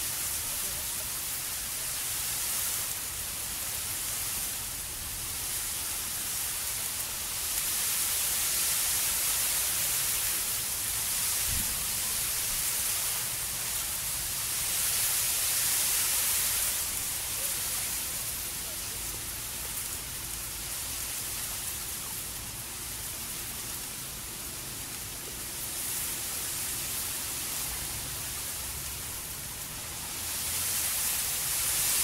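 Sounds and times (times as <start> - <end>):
urban ambience hiss: 0.0 - 32.0.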